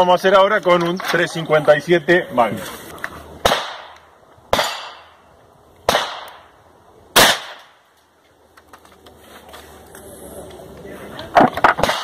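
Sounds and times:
revolver gunshots with echo: 3.4 - 5.1, 5.9 - 6.5, 7.2 - 7.7.

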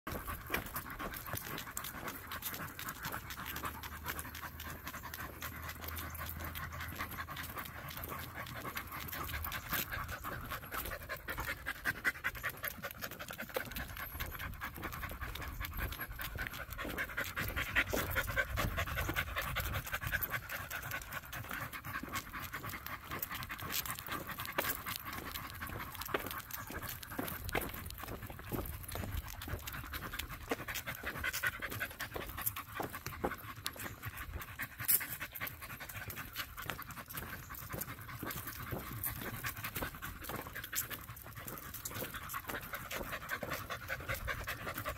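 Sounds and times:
dogs panting: 0.0 - 44.9.

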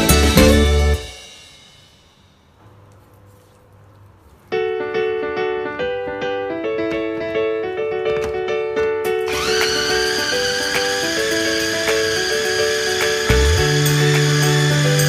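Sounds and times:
piano background music: 0.0 - 1.2, 4.5 - 15.0
food chopper motor whining: 9.3 - 15.0.

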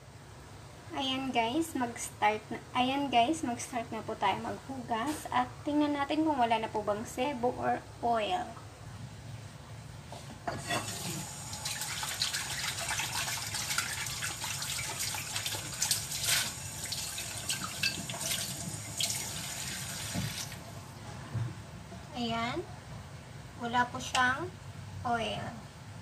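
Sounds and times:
tap water splashing on plate: 11.6 - 20.6.

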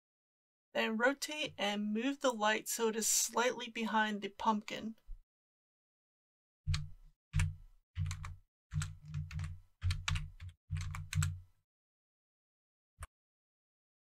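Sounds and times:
computer keyboard clicks: 6.7 - 11.4.

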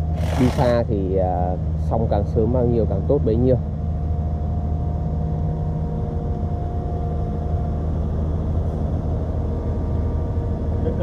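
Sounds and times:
excavator diesel engine running: 0.0 - 1.1
high-pitched whine: 0.0 - 11.0.

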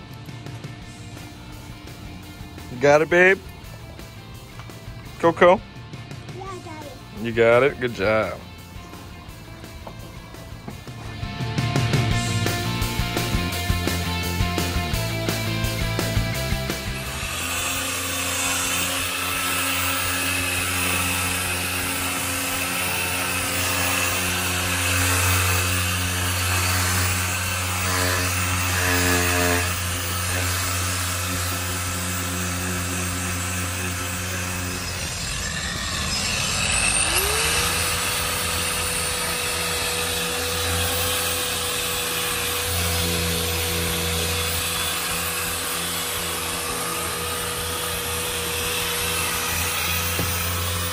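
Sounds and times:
electric motor humming and whining: 7.0 - 50.9.

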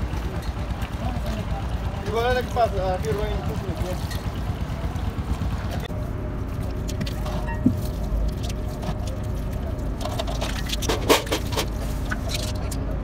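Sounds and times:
low steady rumble: 0.0 - 13.0
wet sloshing and squelching: 6.8 - 13.0.

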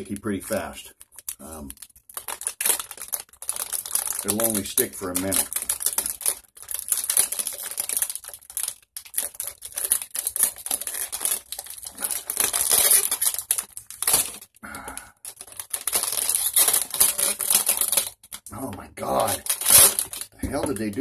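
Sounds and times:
plastic wrapper crinkling: 0.0 - 21.0.

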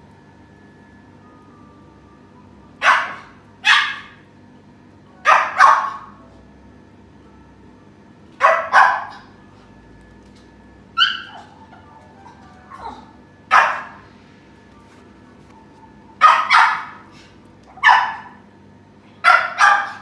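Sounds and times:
small dog barking: 2.8 - 4.2, 5.2 - 6.2, 8.4 - 9.3, 11.0 - 11.6, 12.7 - 14.0, 16.2 - 17.1, 17.7 - 18.4, 19.2 - 20.0.

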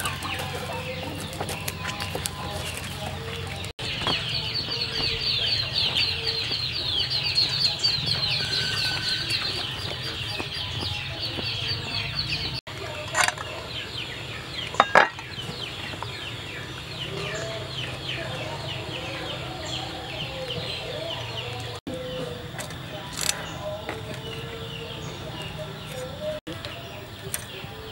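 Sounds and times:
chickens clucking: 0.0 - 27.9
high falling chicken calls: 8.0 - 10.9.

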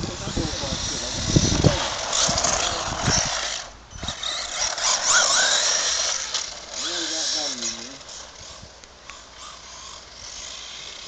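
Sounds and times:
rc car tyres and motor hissing: 0.0 - 11.0.

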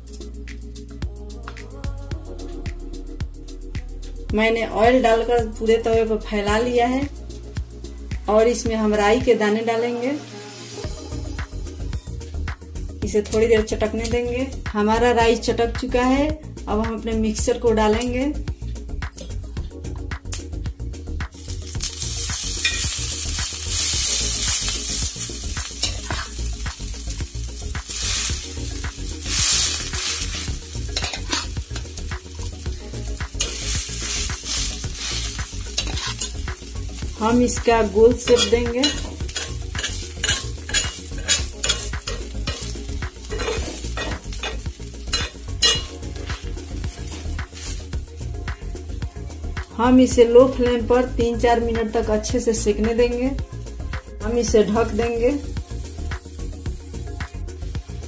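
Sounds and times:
batter sizzling in hot oil: 8.5 - 13.8, 19.2 - 51.2, 51.8 - 58.0
metal spatula scraping pan: 22.6 - 23.0, 29.3 - 32.0, 33.4 - 36.4, 38.2 - 47.8
spatula clicking on pan: 38.3 - 46.4.

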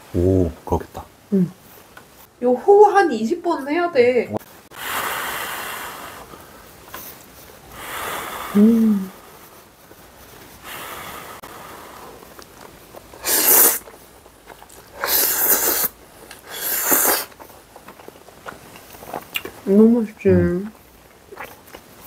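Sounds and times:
person humming: 1.3 - 1.6, 8.5 - 9.2
blowing on hot noodles: 4.7 - 6.5, 7.7 - 9.5, 10.6 - 12.3, 13.1 - 13.9, 14.9 - 17.4
noodles slurped loudly: 13.2 - 19.5.

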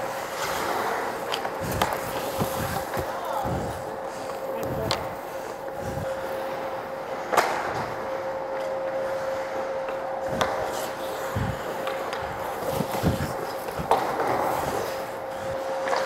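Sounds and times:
hockey sticks and puck clacking: 0.0 - 5.1, 9.8 - 15.1
skates scraping on ice: 0.0 - 16.0
steady hum: 0.0 - 16.0.

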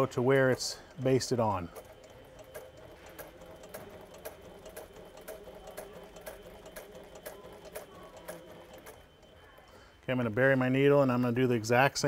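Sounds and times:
sewing machine stitch clicks: 0.0 - 9.3
sewing machine motor hum: 0.0 - 11.4.

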